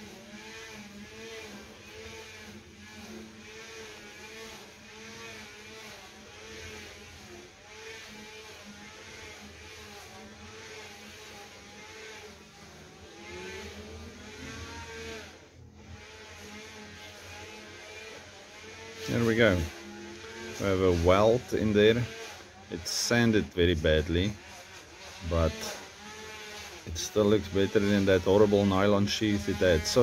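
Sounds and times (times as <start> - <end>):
string trimmer engine running: 0.0 - 30.0.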